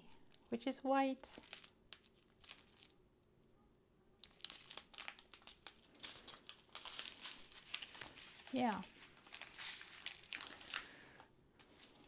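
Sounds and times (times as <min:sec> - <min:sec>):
plastic bags crinkling: 0:01.2 - 0:03.0, 0:04.2 - 0:12.0.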